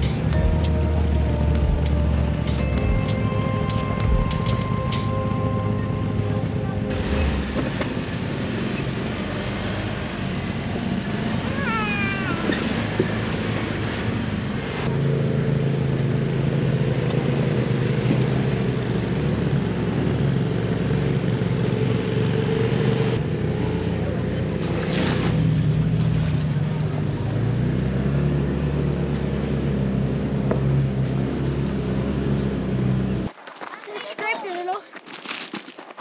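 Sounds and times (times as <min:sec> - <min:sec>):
utv engine running: 0:00.0 - 0:33.3
high squeaks: 0:03.7 - 0:06.8.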